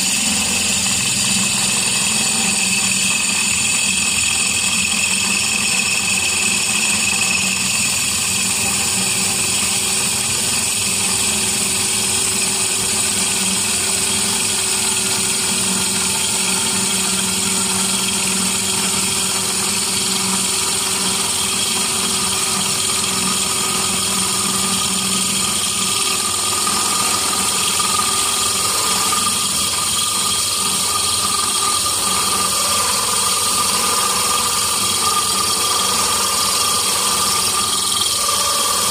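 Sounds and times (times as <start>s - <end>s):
bit grinding glass whine: 0.0s - 38.9s
drill press motor hum: 0.0s - 38.9s.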